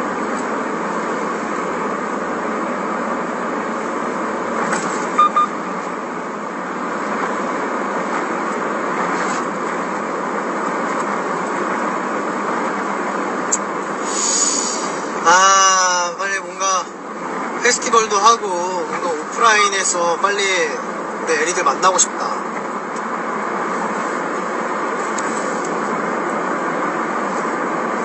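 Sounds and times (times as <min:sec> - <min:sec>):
car road and engine noise: 0:00.0 - 0:28.0
short double beep: 0:05.2 - 0:05.6.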